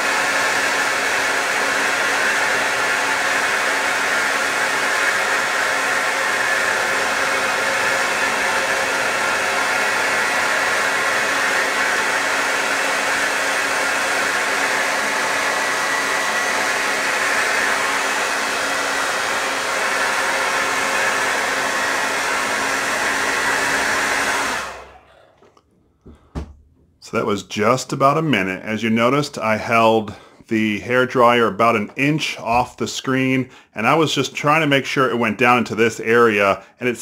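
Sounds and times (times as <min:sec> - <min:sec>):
hair dryer blowing: 0:00.0 - 0:26.6.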